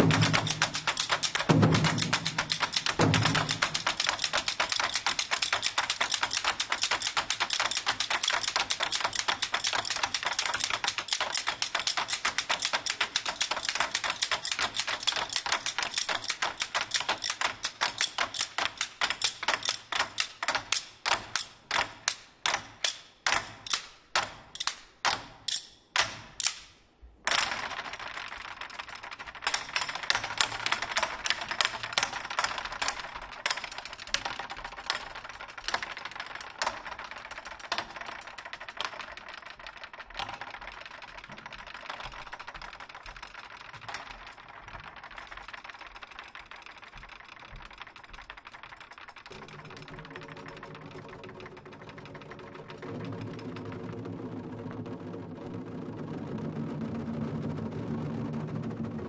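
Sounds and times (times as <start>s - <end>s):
drumsticks clicking: 0.0s - 27.9s.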